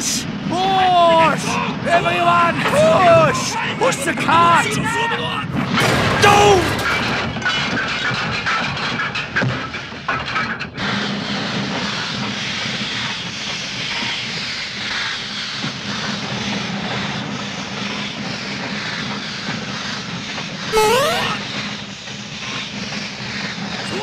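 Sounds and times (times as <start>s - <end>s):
short rising tone: 20.7s - 21.4s.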